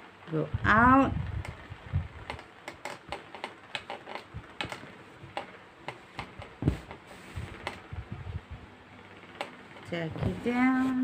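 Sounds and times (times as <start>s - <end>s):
small clicks and taps of stitching: 2.2s - 7.0s
dull knock: 6.2s - 6.9s.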